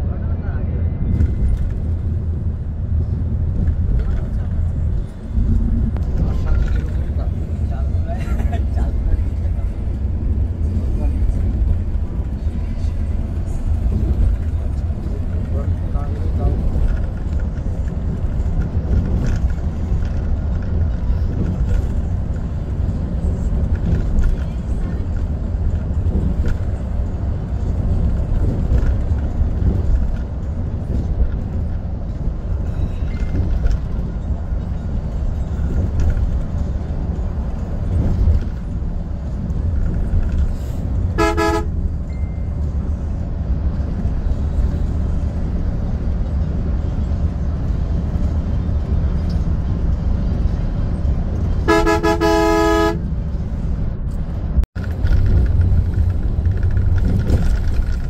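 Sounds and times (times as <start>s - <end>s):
coach engine rumble: 0.0s - 58.0s
vehicle horn: 41.1s - 41.8s, 51.6s - 53.1s.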